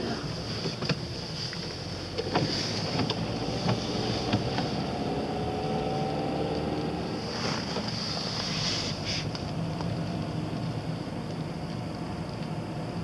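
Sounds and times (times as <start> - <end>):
car engine and tyre rumble: 0.0 - 13.0
light ticks: 9.3 - 13.0.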